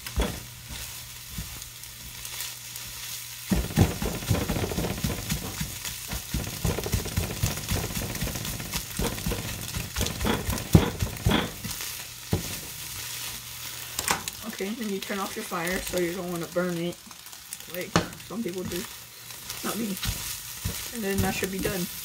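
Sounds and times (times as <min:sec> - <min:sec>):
spatula scraping a pan: 0:00.0 - 0:13.8, 0:18.5 - 0:22.0
eggs sizzling in frying pan: 0:00.0 - 0:22.0.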